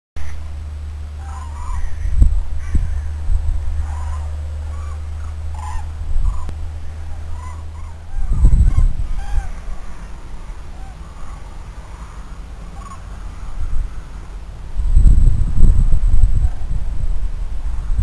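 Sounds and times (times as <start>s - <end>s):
cranes trumpeting calls: 0.2s - 14.6s
low rumble: 0.2s - 18.0s.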